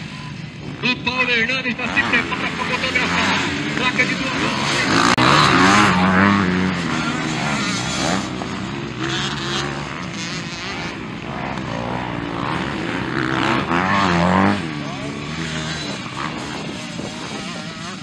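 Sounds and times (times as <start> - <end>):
motocross bike engines revving: 0.0 - 18.0.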